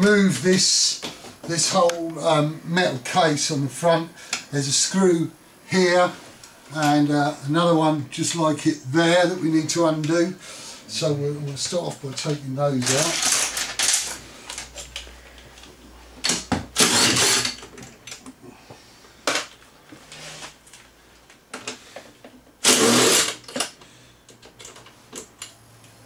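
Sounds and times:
cordless screwdriver whirring: 22.6s - 23.4s.

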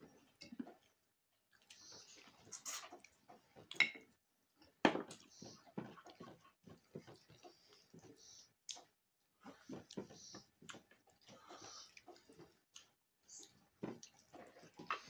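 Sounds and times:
chewing: 0.2s - 3.8s, 4.6s - 15.0s.

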